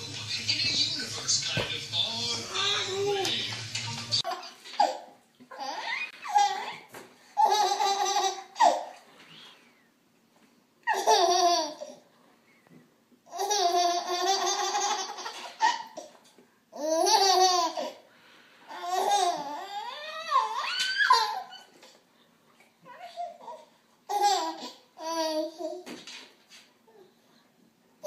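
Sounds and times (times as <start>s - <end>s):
baby laughing: 2.1s - 9.0s, 10.8s - 12.0s, 13.3s - 16.2s, 16.8s - 18.0s, 18.7s - 22.0s, 23.0s - 25.9s.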